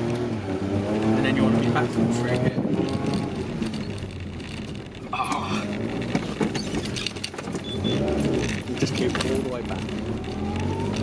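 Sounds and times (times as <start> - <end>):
car engine under load: 0.0 - 11.0
car jolting bumps and knocks: 2.6 - 10.0.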